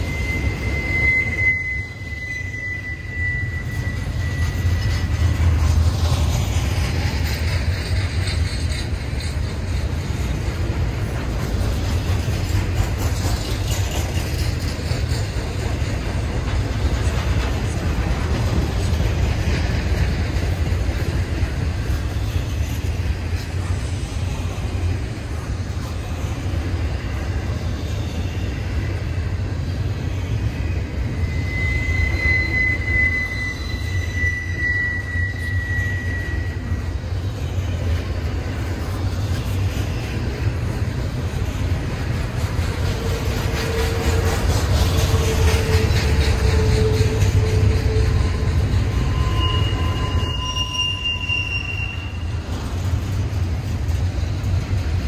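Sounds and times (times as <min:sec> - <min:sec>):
high thin squeal: 0:00.0 - 0:09.4, 0:30.1 - 0:37.9, 0:42.8 - 0:52.8
freight train wheels rumbling: 0:00.0 - 0:55.0.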